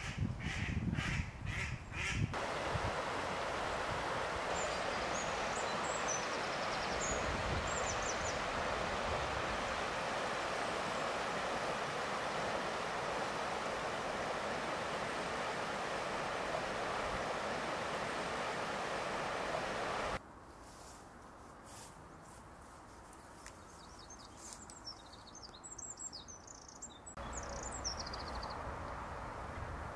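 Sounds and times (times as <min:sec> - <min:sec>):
river rushing over stones: 0:02.4 - 0:20.2
small bird chirping: 0:23.6 - 0:28.6.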